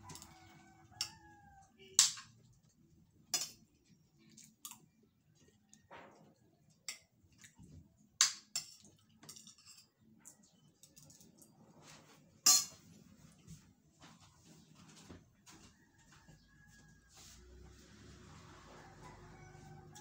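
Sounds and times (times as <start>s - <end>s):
cutlery clinking on plates: 3.3s - 3.8s, 8.2s - 10.0s, 12.4s - 12.9s.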